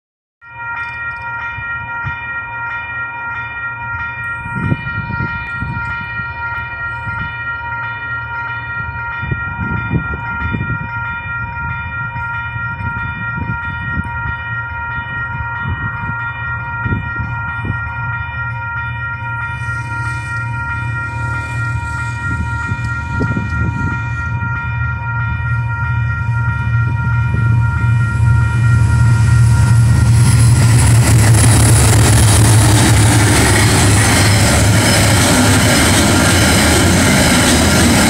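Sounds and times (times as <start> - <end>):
level crossing bell ringing: 0.4 - 30.1
low rumbling: 20.3 - 38.0.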